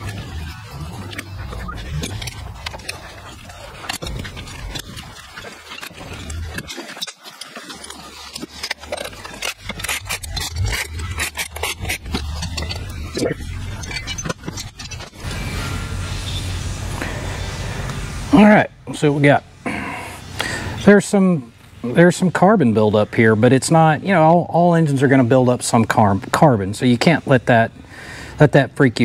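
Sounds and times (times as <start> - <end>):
steady low hum: 0.0 - 7.0, 7.6 - 29.0
metal tools and parts clinking: 0.0 - 15.3.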